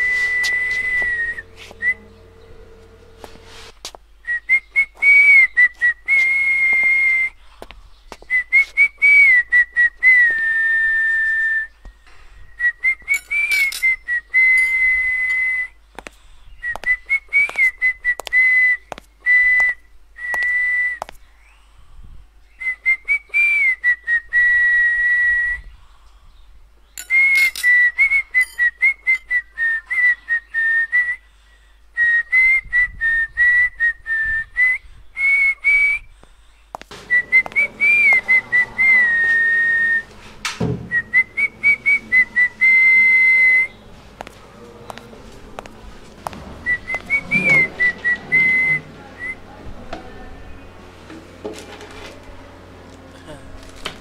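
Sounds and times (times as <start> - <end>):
person whistling a tune: 0.0 - 2.1, 4.3 - 7.4, 8.3 - 11.8, 12.6 - 15.8, 16.6 - 21.0, 27.0 - 31.3, 32.0 - 36.1, 37.1 - 40.0, 40.9 - 43.8, 46.6 - 49.4.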